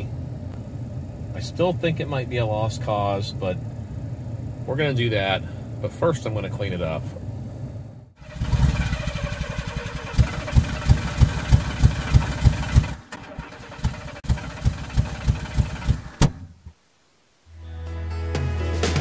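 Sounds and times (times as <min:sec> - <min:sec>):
engine running with pulsing beat: 0:08.2 - 0:13.0, 0:13.7 - 0:16.3.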